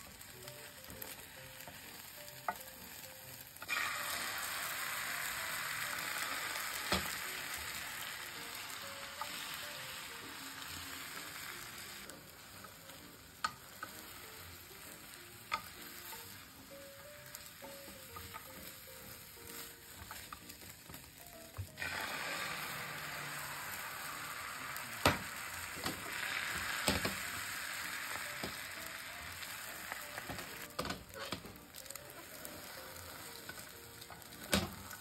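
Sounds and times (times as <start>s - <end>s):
egg sizzling in a pan: 0.0s - 35.0s.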